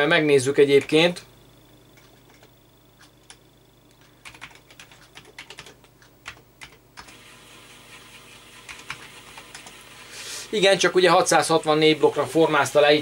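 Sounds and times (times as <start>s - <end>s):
typing on computer keyboard: 4.0s - 7.2s, 8.7s - 9.8s.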